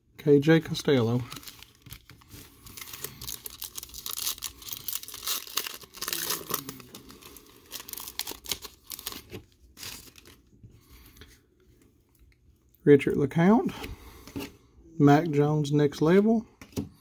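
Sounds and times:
cellophane wrapper crinkling: 1.2s - 10.5s.

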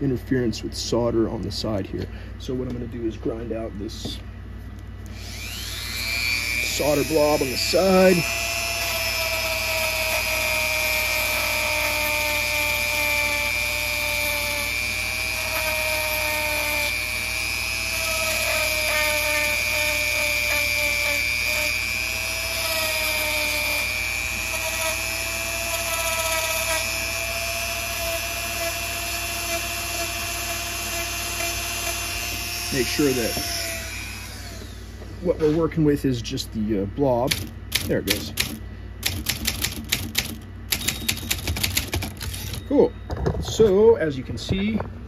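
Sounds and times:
power grinder whining on metal: 5.1s - 35.0s, 42.1s - 42.9s.

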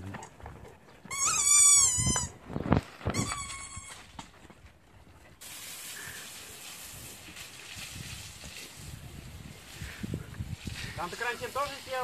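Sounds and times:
dog whining: 1.0s - 2.4s.

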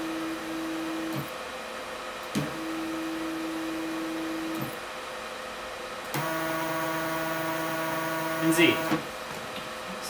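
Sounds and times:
stepper motor hum: 6.0s - 9.1s.

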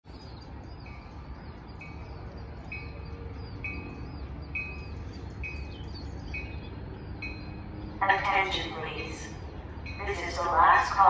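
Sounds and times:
bird chirps: 0.1s - 10.9s.

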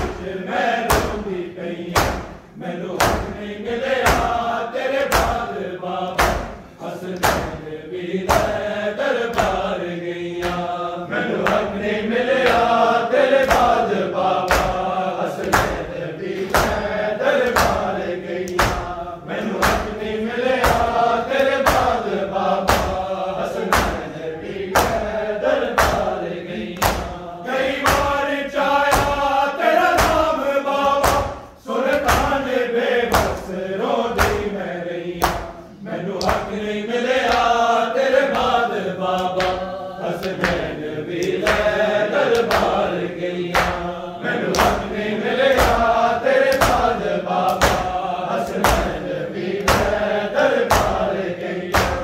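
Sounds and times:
men chanting in unison: 0.0s - 52.0s
hands slapping bare chests: 1.9s - 2.4s, 3.0s - 3.4s, 5.0s - 5.5s, 6.2s - 7.6s, 8.2s - 8.6s, 9.2s - 9.8s, 10.4s - 10.7s, 11.3s - 11.7s, 13.4s - 20.0s, 20.6s - 24.1s, 24.7s - 28.2s, 28.8s - 32.5s, 33.1s - 34.6s, 35.2s - 36.6s, 37.2s - 49.0s, 49.6s - 50.0s, 50.6s - 51.0s, 51.7s - 52.0s.

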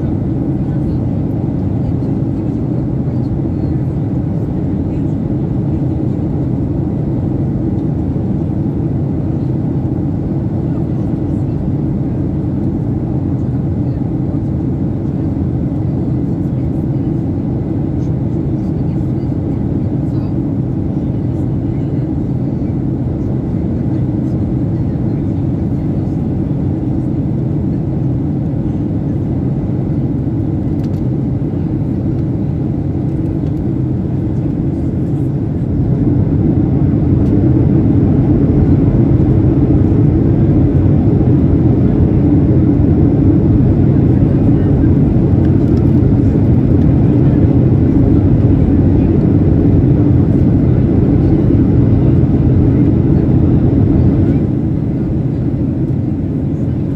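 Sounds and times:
airliner cabin engine rumble: 0.0s - 56.9s.

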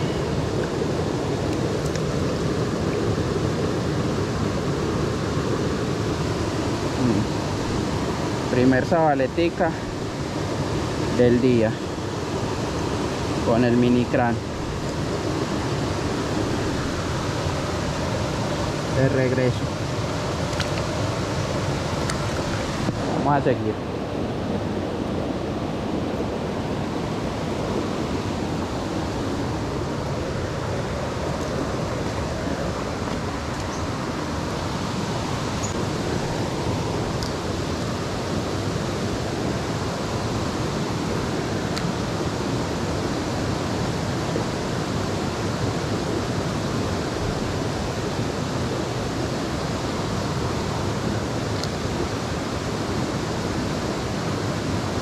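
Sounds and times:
fast-flowing stream rushing: 0.0s - 55.0s.

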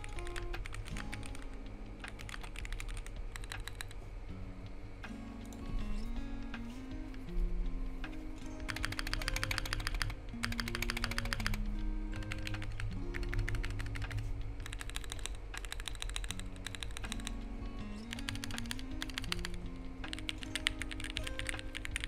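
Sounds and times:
mechanical keyboard key clacks: 0.0s - 4.0s, 8.6s - 11.6s, 12.2s - 17.4s, 18.1s - 22.0s
slow background music: 0.0s - 22.0s.

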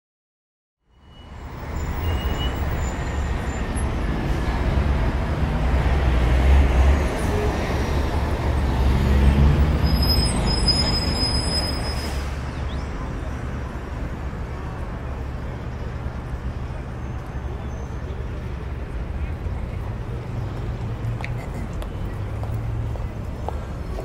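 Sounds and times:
city street traffic rumble: 0.8s - 24.0s.

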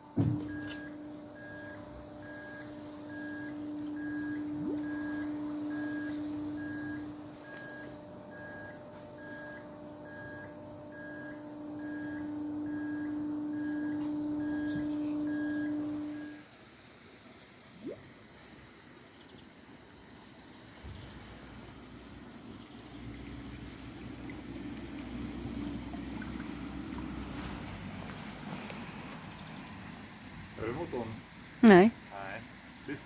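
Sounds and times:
electric boat motor humming: 0.0s - 16.6s, 19.7s - 33.0s
faint high chirps: 0.4s - 16.4s.

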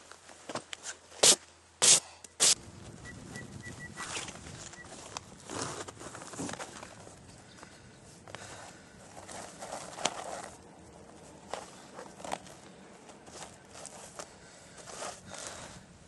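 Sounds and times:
canvas and cord rustling: 3.7s - 15.8s.

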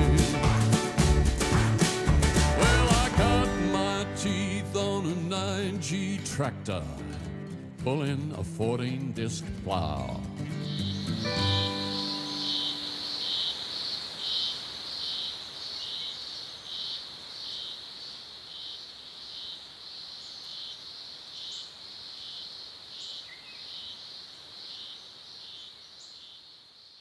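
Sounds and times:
insects chirping: 10.6s - 27.0s.

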